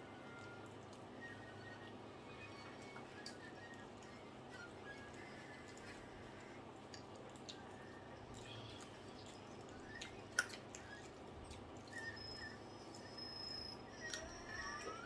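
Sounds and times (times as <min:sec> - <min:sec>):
mouth clicks and lip smacks: 0:09.2 - 0:12.1.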